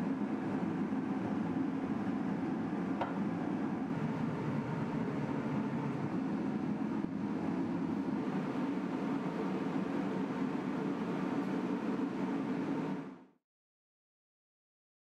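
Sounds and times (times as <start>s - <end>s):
gas heater burner rushing: 0.0s - 13.2s.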